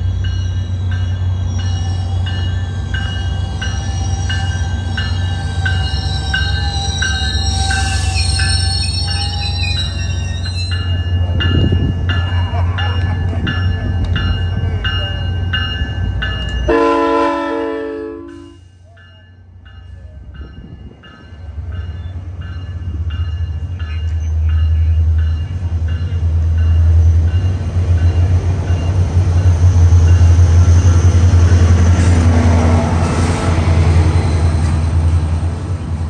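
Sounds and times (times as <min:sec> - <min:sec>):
diesel locomotive rumble: 0:00.0 - 0:36.0
train horn: 0:16.7 - 0:18.7.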